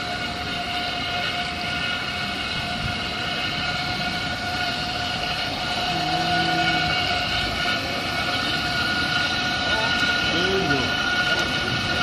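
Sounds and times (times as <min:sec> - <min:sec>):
spa motor drone: 0:00.0 - 0:12.0
whirlpool jets bubbling water: 0:00.0 - 0:12.0.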